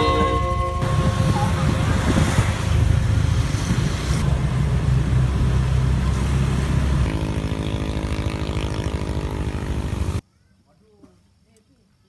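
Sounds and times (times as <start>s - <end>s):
road rushing noise: 0.0s - 10.2s
scooter engines running: 0.0s - 10.2s.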